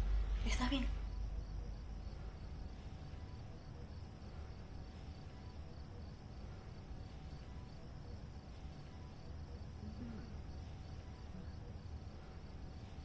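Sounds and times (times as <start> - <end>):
crickets chirping: 0.0 - 13.0
low hum: 0.0 - 13.0.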